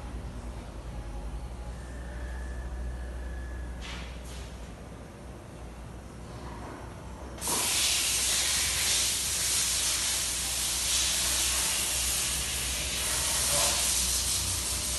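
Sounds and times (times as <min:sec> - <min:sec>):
loud steady hiss: 0:07.4 - 0:14.9.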